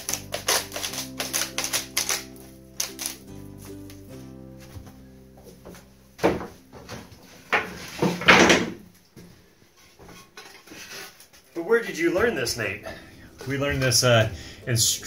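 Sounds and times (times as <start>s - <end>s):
wooden boards knocking and scraping: 6.2s - 8.8s.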